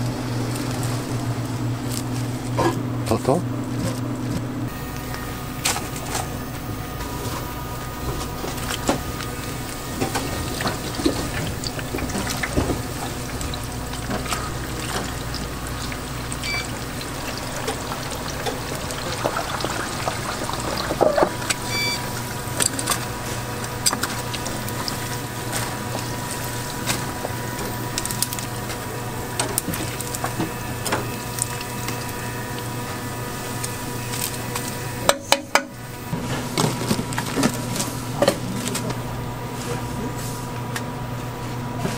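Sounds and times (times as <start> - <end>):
liquid pouring: 10.1 - 28.6.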